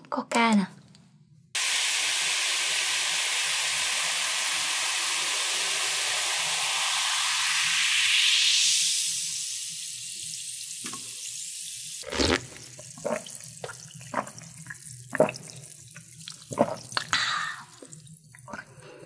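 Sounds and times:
soda fizzing over ice: 1.6 - 18.2
swallowing gulps: 12.0 - 15.6, 16.4 - 18.8.

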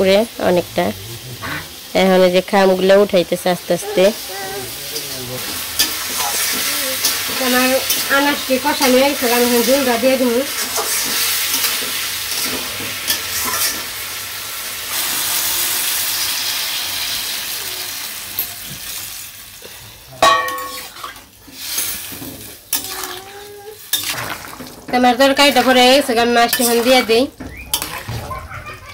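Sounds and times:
vegetables sizzling in hot oil: 0.0 - 27.9
faint voice: 3.8 - 5.4
spoon scraping a wok: 5.0 - 13.9, 20.5 - 28.1.

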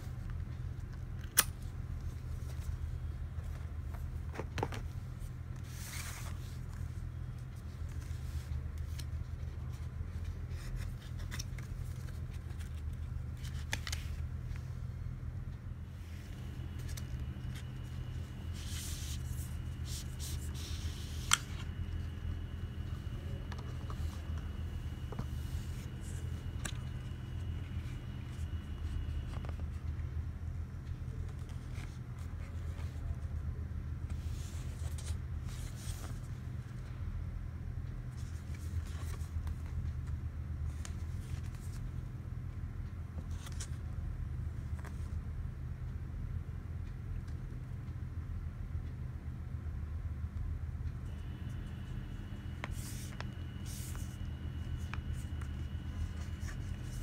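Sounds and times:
low hum: 0.0 - 57.0
card packaging rustling: 7.7 - 14.5.

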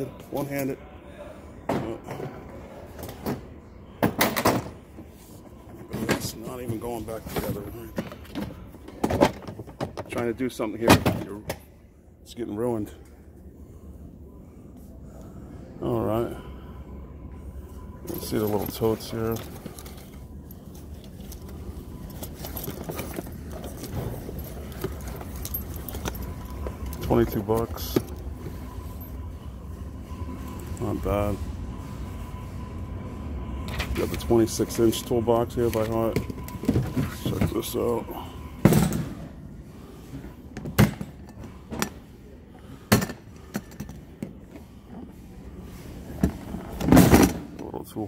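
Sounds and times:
low steady hum: 0.0 - 48.0
metal hardware jingling and clicking: 18.1 - 28.2.

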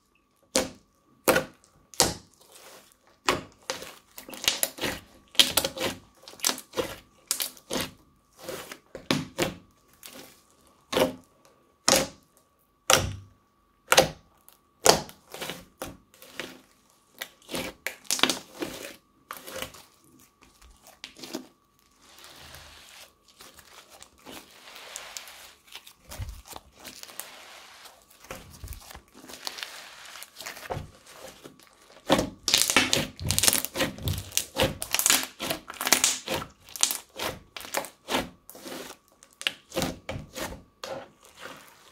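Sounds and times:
crunchy slime popping and crackling: 3.2 - 7.9, 17.1 - 22.3, 28.1 - 38.2
slime crinkling stretch: 15.4 - 41.9.

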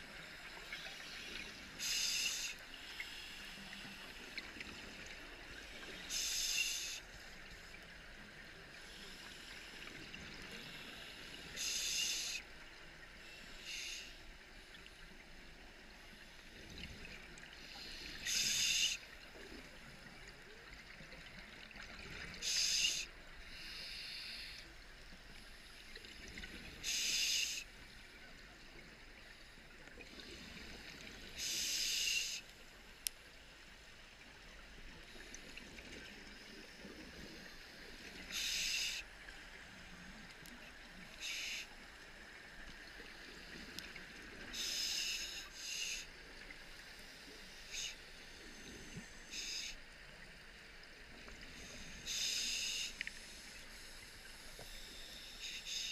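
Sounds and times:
low underwater hum: 0.0 - 55.9
regulator bubbling hiss: 0.6 - 4.0, 5.7 - 7.1, 10.6 - 12.4, 17.6 - 19.0, 26.8 - 27.7, 31.3 - 32.4, 38.2 - 39.1, 41.2 - 41.8, 44.4 - 46.1, 47.0 - 49.8, 51.5 - 55.9
inhalation hiss: 0.8 - 4.1, 6.0 - 7.0, 10.6 - 12.4, 13.3 - 14.2, 17.6 - 19.0, 22.4 - 24.7, 26.8 - 27.7, 31.4 - 32.5, 38.3 - 39.1, 41.2 - 41.8, 44.5 - 46.1, 47.0 - 49.8, 51.5 - 55.9.

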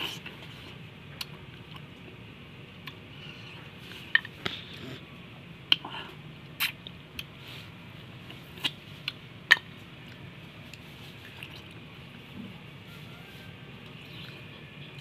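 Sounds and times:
lip smacks: 5.7 - 5.9.

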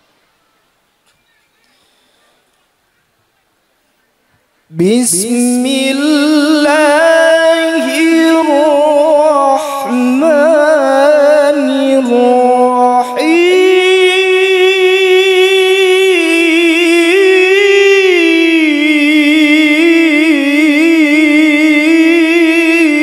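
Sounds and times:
man reciting melodically: 4.7 - 23.0.

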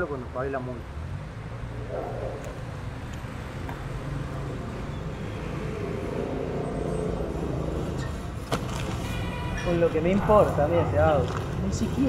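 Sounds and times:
vehicle engine passing: 0.9 - 8.9.

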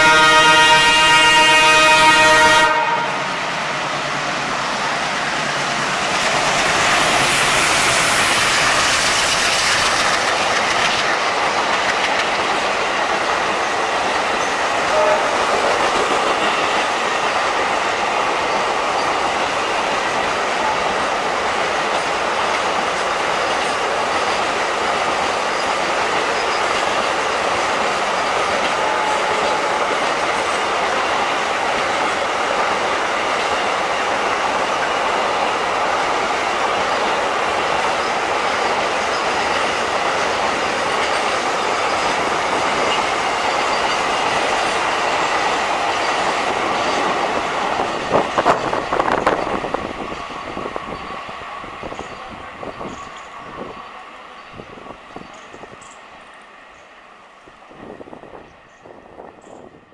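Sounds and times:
locomotive horn: 0.0 - 3.5, 14.8 - 15.6, 28.6 - 30.0
train wagons rumbling: 0.0 - 56.9
locomotive passing: 0.0 - 59.9.

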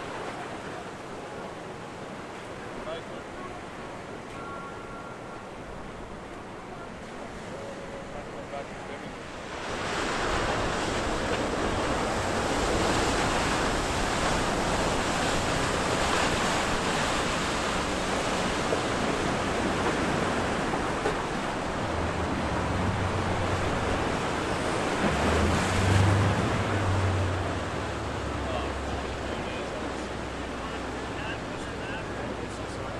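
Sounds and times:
boat engines droning: 0.0 - 32.9
waves: 0.0 - 32.9.

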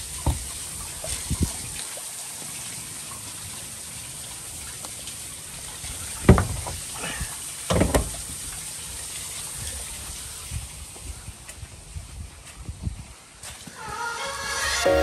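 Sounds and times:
metal door latch clunking: 7.7 - 8.2.

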